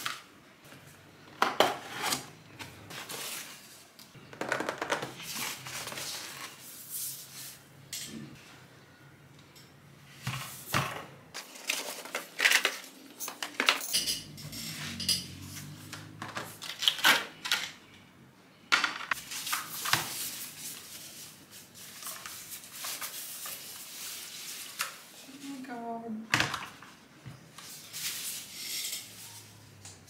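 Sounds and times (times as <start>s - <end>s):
dishes and utensils clinking: 13.1s - 16.2s.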